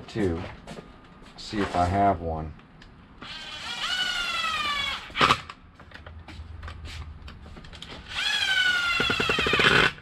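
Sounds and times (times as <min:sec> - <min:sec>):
electric screwdriver whining: 0:08.0 - 0:10.0.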